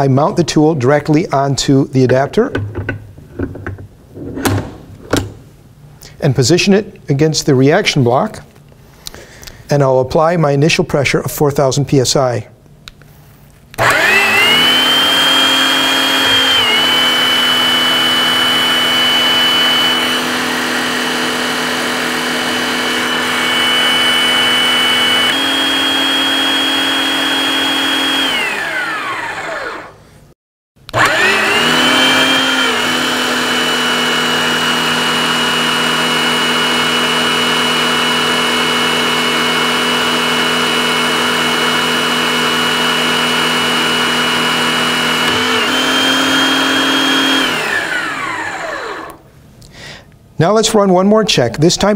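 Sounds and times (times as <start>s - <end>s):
electric pump motor whining: 13.8s - 30.0s, 30.9s - 49.3s.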